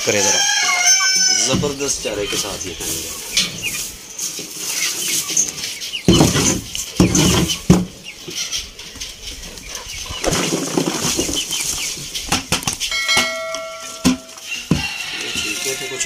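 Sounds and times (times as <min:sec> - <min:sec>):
birds chirping: 0:00.0 - 0:16.0
thumps and rustles of feed: 0:06.0 - 0:08.0, 0:10.2 - 0:12.8.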